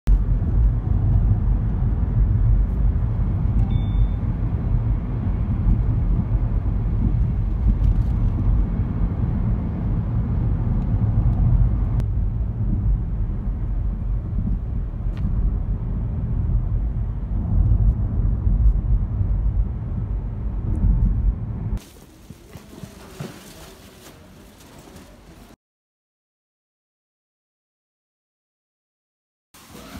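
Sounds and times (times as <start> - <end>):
car rumble inside cabin: 0.1 - 21.8.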